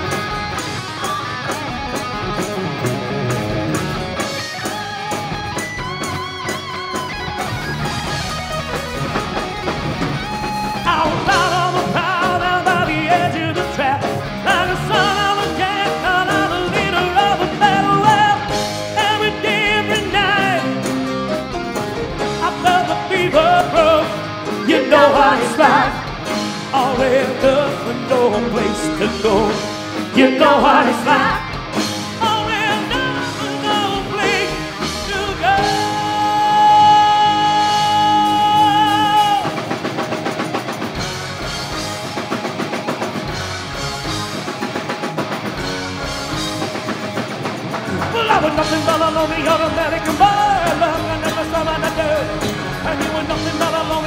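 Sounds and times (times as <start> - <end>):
live rock band playing: 0.0 - 54.0
man singing lead: 10.8 - 21.1, 22.2 - 39.9, 47.9 - 54.0.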